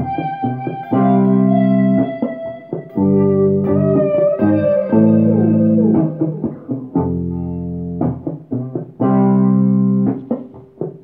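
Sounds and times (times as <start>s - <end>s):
guitar with heavy delay echoes: 0.0s - 11.0s.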